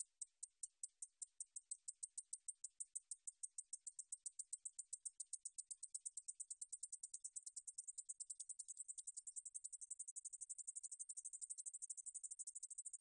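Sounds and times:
katydid high-pitched ticking: 0.0 - 13.0.

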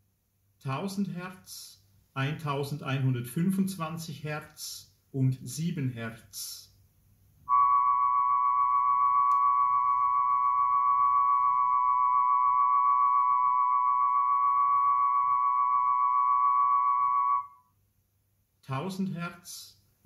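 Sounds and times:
steady test tones: 7.5 - 17.4.

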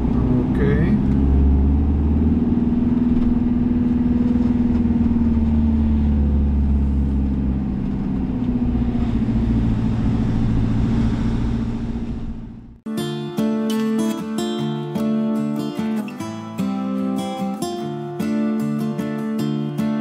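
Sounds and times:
diesel engine rumbling: 0.0 - 12.9.

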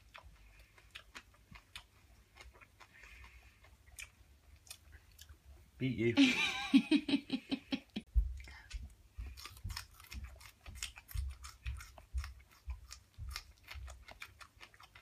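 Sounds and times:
crisp chewing crunches: 0.0 - 5.5, 8.4 - 15.0
dull low thumps: 8.1 - 13.5.

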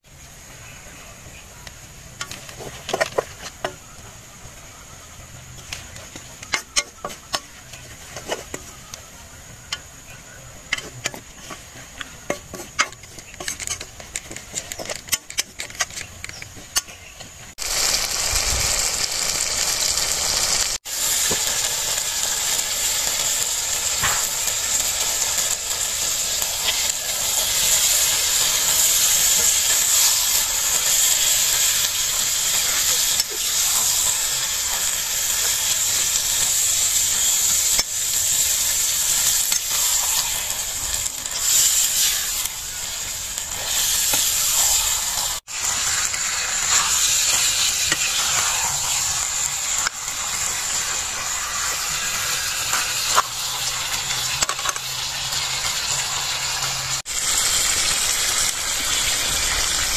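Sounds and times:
chicken sizzling in hot oil: 0.0 - 59.9
spoon scraping and tapping iron pan: 2.2 - 3.9, 5.6 - 10.0, 10.7 - 17.4, 54.1 - 55.0.

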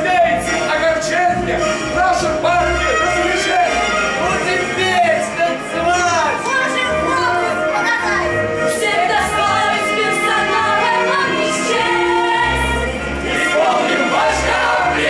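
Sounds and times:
musical accompaniment with bass: 0.0 - 15.0
group singing in chorus: 8.7 - 15.0.

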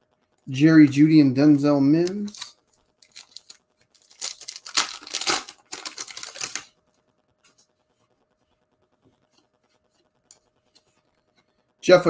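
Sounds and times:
foil wrapper crinkling: 0.9 - 6.8.

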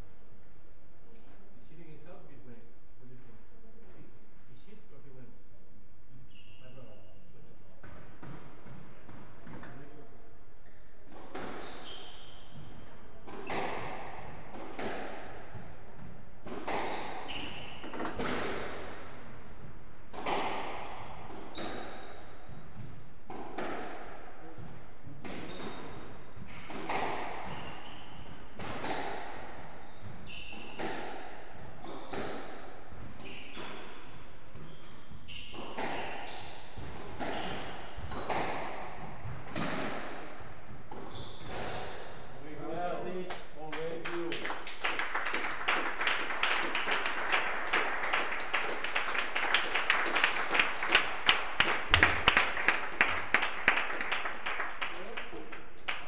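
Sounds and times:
squash ball hitting rackets and walls: 7.6 - 43.2, 45.0 - 56.0
shoes squeaking on wooden floor: 11.4 - 13.7, 16.7 - 18.3, 29.8 - 30.8, 31.8 - 39.7, 41.0 - 41.8.

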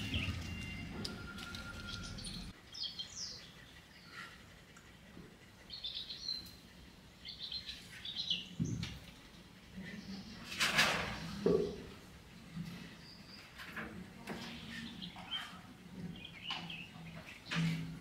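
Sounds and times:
small birds chirping: 0.0 - 9.0, 14.3 - 17.7.

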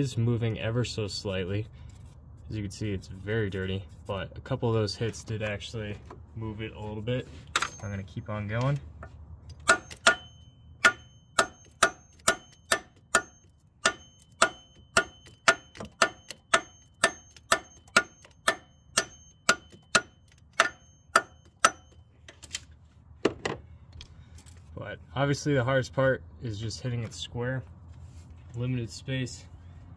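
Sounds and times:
hammer striking metal: 9.6 - 22.0.

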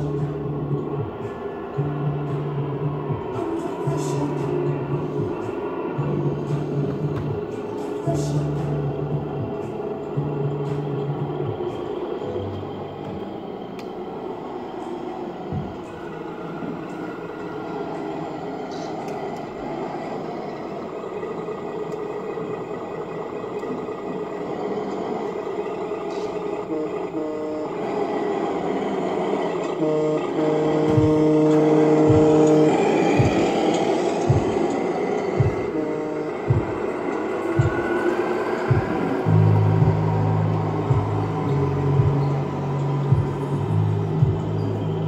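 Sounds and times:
low held tones: 0.0 - 45.0
model truck engine hum: 0.0 - 45.0
horn-like tone: 26.1 - 45.0.

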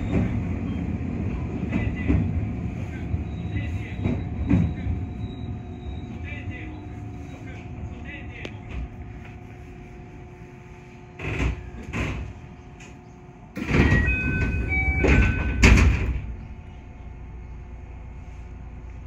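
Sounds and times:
train doors thumping shut: 0.0 - 2.6, 3.9 - 5.0, 11.2 - 16.5.

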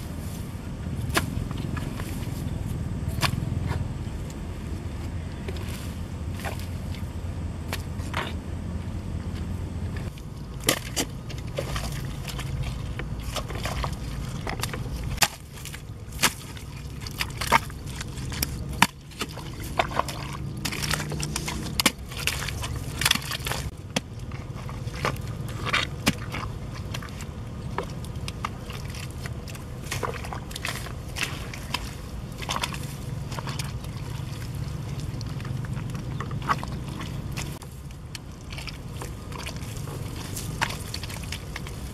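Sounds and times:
low rumble: 0.0 - 41.9
mud squelching: 0.0 - 41.9
hoe chopping into wet mud: 10.6 - 12.5, 13.2 - 24.1.

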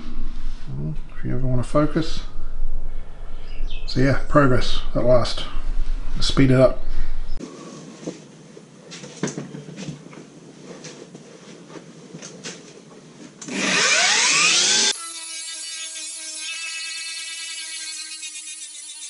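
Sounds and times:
angle grinder whining: 13.4 - 19.0.

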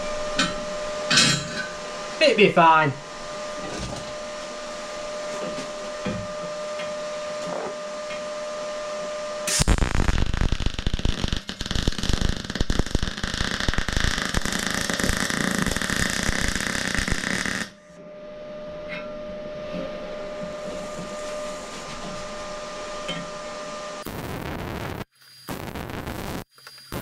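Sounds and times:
steady hum: 0.0 - 27.0
welding arc crackling: 9.5 - 17.7, 24.0 - 27.0.

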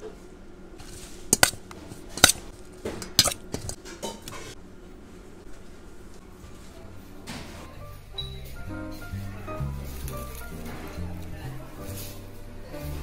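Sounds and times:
utensils clinking on bowls: 1.3 - 1.6, 3.0 - 4.6.

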